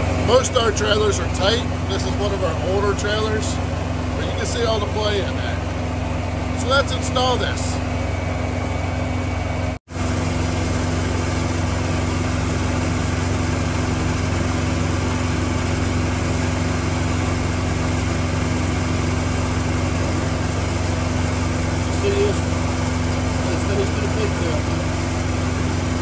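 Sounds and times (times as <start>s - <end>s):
diesel truck engine idling: 0.0s - 26.0s.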